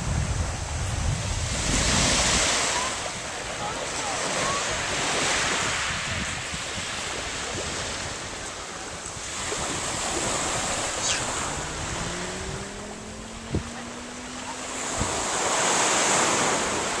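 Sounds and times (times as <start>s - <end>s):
wind buffeting microphone: 0.0s - 17.0s
faint rising hum: 10.8s - 14.8s.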